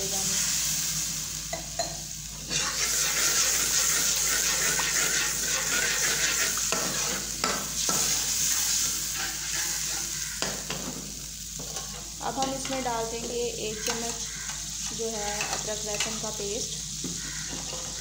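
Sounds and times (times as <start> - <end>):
chilli powder sizzling in oil: 0.0 - 18.0
spoon scraping and tapping pan: 1.5 - 2.6, 11.6 - 16.2, 17.0 - 18.0.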